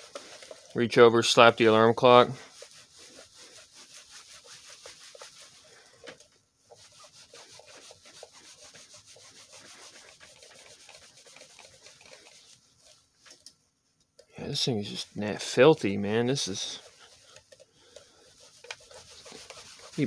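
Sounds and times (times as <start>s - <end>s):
cloth scrubbing plastic case: 16.3s - 20.0s.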